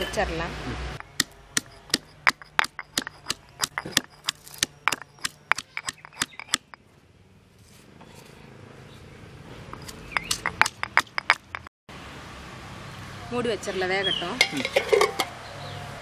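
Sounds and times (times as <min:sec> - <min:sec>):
stone pestle pounding in mortar: 0:01.0 - 0:06.8, 0:09.8 - 0:11.7.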